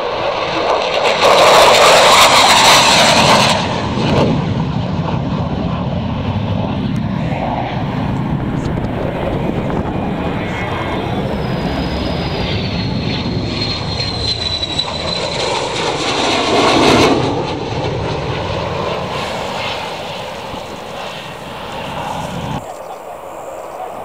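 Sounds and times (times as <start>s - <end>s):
jet engine flying past: 0.0s - 24.0s
high whine falling in pitch: 7.0s - 15.7s.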